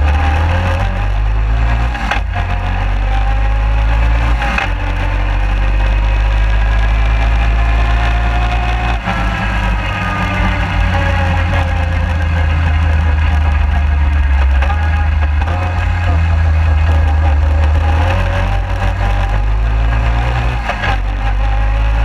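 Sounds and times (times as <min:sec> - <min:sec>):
atv engine humming: 0:00.0 - 0:22.0.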